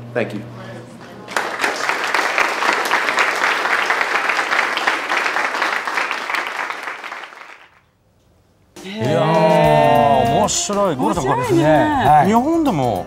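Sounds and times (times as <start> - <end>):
audience applause: 1.2 - 7.8, 9.0 - 10.5.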